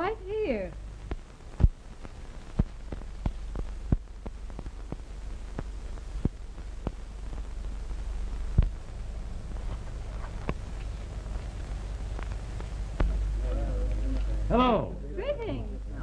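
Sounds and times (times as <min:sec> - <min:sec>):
low film soundtrack hum: 0:00.0 - 0:16.0
clicks and pops: 0:01.0 - 0:07.6, 0:08.5 - 0:08.9.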